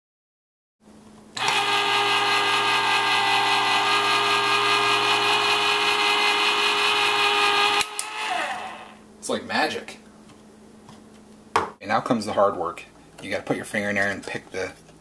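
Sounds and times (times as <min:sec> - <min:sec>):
electric can opener whining: 0:01.4 - 0:09.0.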